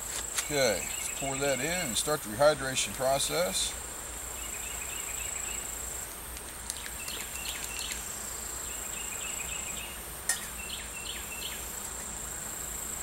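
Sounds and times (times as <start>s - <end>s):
bird chirps: 6.7s - 8.0s, 8.7s - 11.7s.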